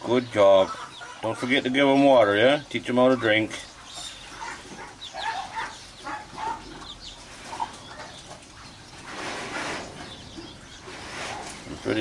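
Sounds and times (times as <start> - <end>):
chicks peeping: 0.0 - 12.0
scratchy rustle: 9.0 - 10.2, 10.8 - 12.0.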